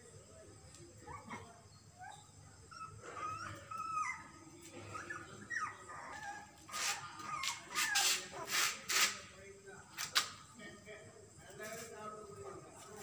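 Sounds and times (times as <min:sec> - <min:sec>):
puppies whimpering and squealing: 0:01.0 - 0:08.9.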